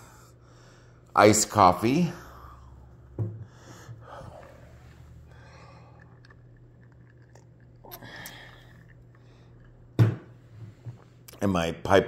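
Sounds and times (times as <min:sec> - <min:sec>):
man breathing: 0:00.0 - 0:01.1, 0:02.1 - 0:06.1
low steady hum: 0:00.0 - 0:12.0.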